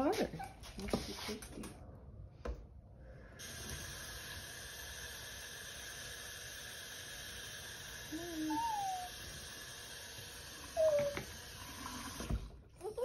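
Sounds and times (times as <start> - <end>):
small dog whining: 8.1 - 9.2, 10.7 - 11.3.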